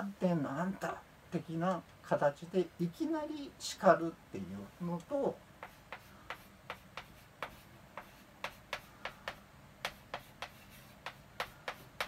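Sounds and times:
chalk tapping on blackboard: 5.6 - 12.0.

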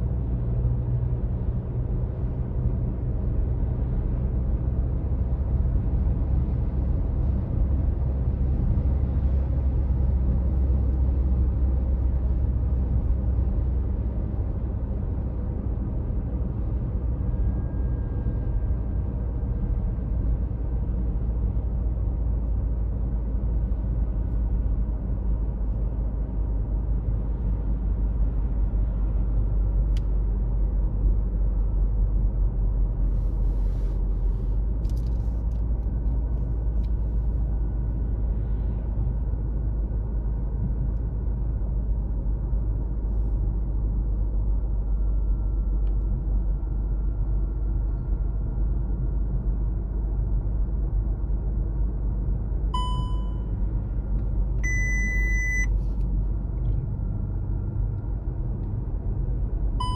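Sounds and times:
car engine and tyre rumble: 0.0 - 59.9
short electronic beeps: 52.8 - 53.5, 54.6 - 55.8.

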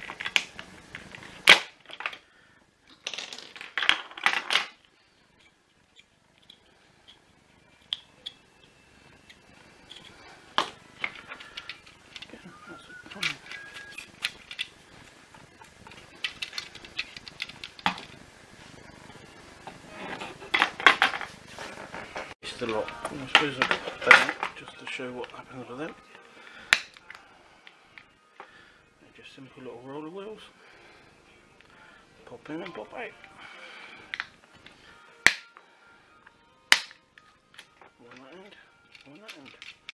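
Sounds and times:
loud plastic crack: 0.0 - 2.2
plastic rattles: 9.8 - 12.4, 13.0 - 14.8, 15.7 - 18.2, 37.5 - 39.9
soft rustle: 21.2 - 22.4
plastic snaps and clicks: 34.1 - 34.4, 36.7 - 38.2.

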